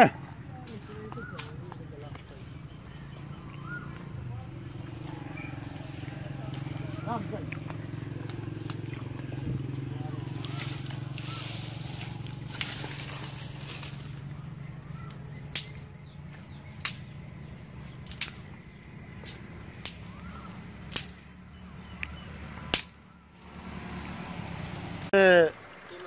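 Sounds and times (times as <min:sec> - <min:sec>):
low engine-like hum: 0:00.0 - 0:26.0
faint bird chirps: 0:00.5 - 0:23.4
sharp cracks: 0:03.6 - 0:23.6.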